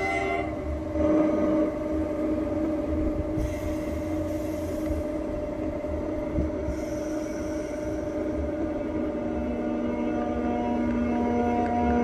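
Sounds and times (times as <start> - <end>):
low rumble: 0.0 - 12.0
burst of hiss: 3.4 - 5.0, 6.7 - 8.4.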